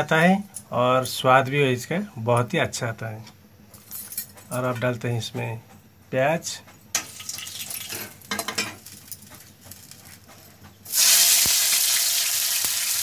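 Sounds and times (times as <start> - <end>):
onions sizzling in hot oil: 7.1 - 7.9, 10.9 - 13.0.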